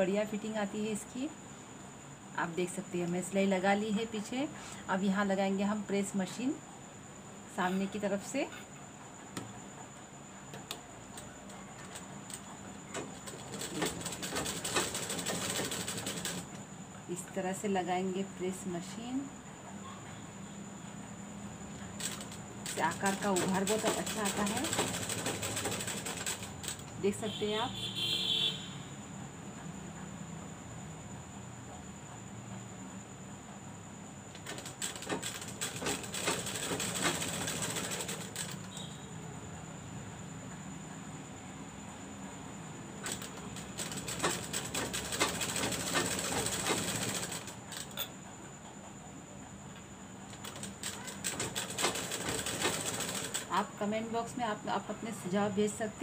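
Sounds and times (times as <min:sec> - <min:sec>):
sewing machine stitching: 0:11.8 - 0:16.5, 0:22.0 - 0:27.0, 0:34.4 - 0:38.8, 0:43.0 - 0:48.1, 0:50.3 - 0:53.7.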